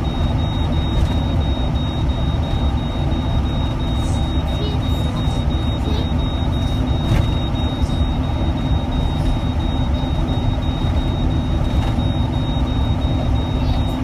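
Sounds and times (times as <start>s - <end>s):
truck engine and tyres rumbling: 0.0s - 14.0s.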